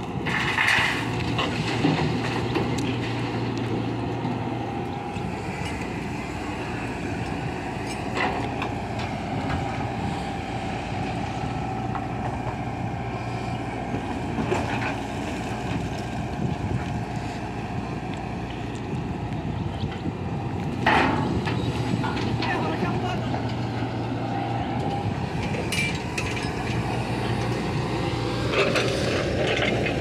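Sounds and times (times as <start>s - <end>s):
excavator diesel engine whining: 0.0s - 30.0s.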